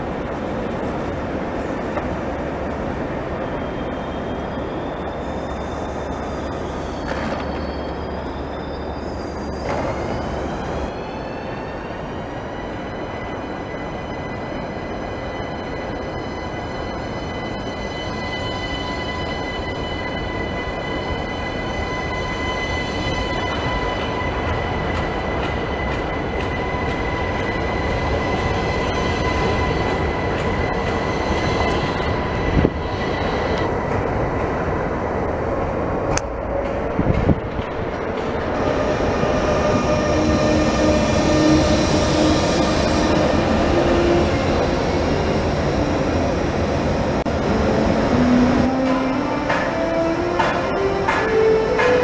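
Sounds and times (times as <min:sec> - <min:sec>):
electric train whining: 0:00.0 - 0:52.0
train running noise: 0:00.0 - 0:52.0.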